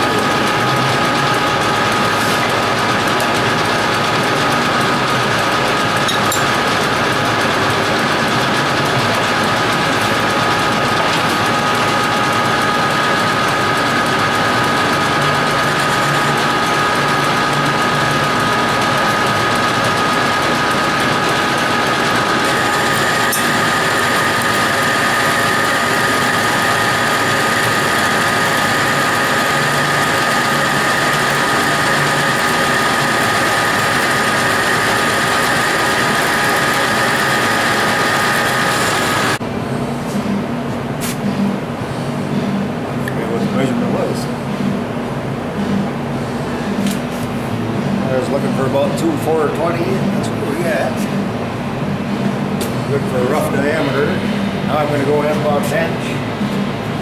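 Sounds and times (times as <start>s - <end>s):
metal lathe whining: 0.0s - 39.4s.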